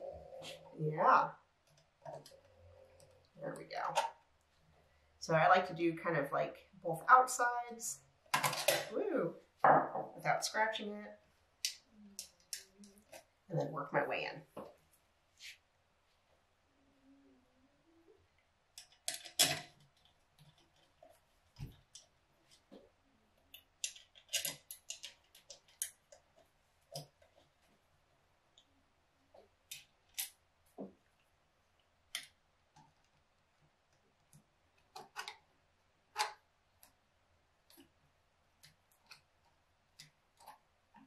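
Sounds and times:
small metallic clicks and taps: 22.7 - 27.4.

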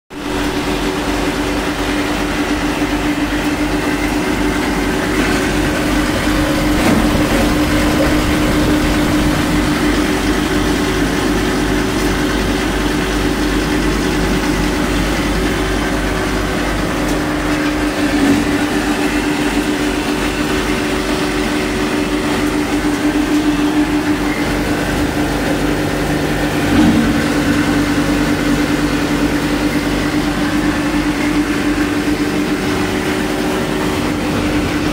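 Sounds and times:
machine droning: 0.1 - 34.9
machine knocks: 5.1 - 11.0.

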